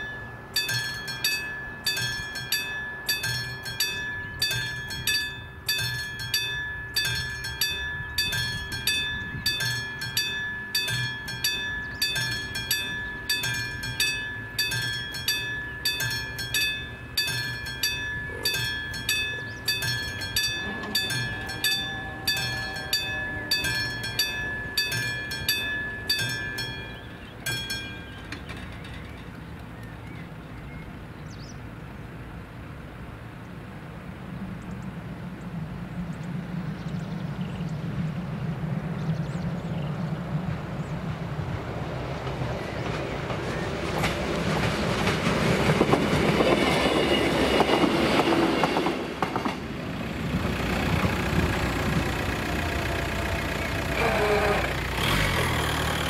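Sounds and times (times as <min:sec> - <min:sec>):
level crossing bell dinging: 0:00.0 - 0:28.3.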